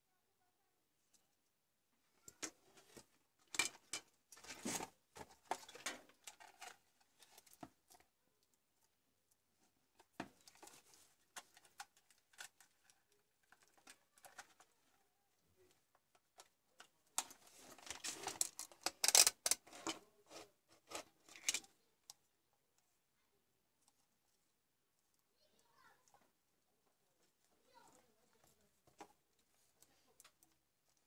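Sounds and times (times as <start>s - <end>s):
plastic parts clicking and knocking: 2.3s - 8.0s, 9.9s - 14.8s, 15.9s - 22.2s.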